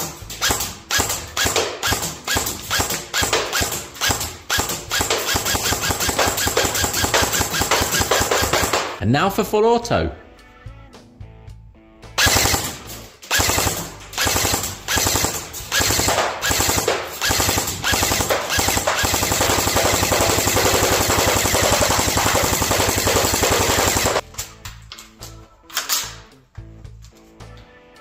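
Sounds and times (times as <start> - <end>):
airsoft gun firing bursts: 0.0 - 9.0, 12.2 - 24.2.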